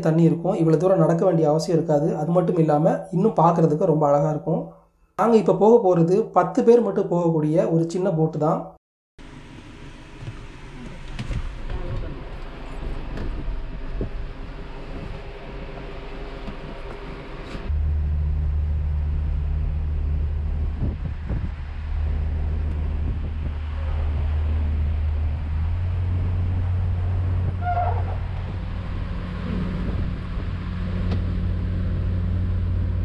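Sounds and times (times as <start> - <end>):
boat engine droning: 9.2 - 33.0.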